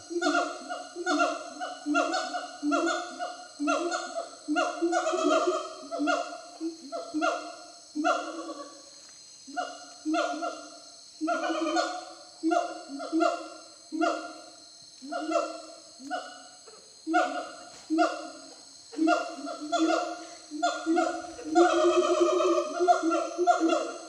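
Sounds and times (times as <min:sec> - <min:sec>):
gibbon hooting calls: 0:17.1 - 0:24.0.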